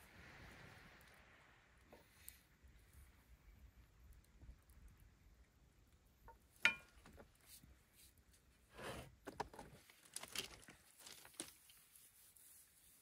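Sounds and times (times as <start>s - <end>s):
metal utensil clinking on pan: 6.7s - 6.9s.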